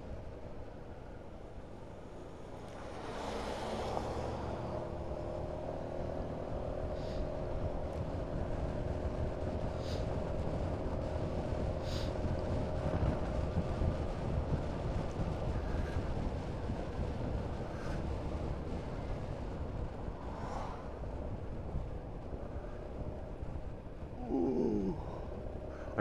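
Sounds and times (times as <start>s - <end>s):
wind rumble on microphone: 0.0s - 26.0s
car swishing past on wet road: 2.7s - 5.0s.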